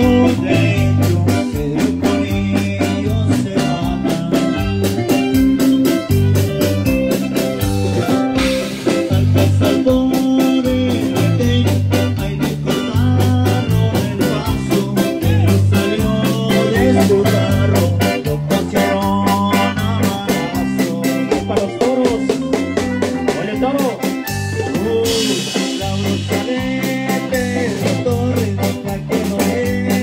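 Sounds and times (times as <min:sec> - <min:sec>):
live band playing dance music: 0:00.0 - 0:30.0.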